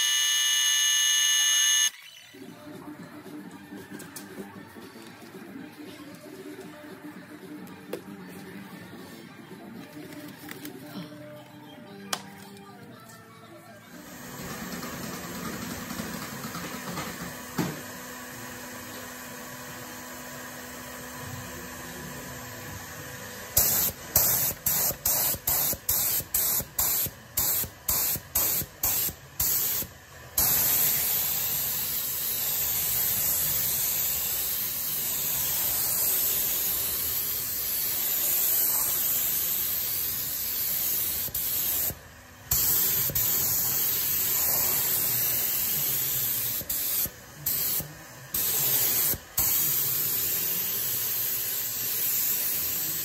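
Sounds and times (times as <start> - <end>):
paint spray gun hissing: 23.6 - 53.0.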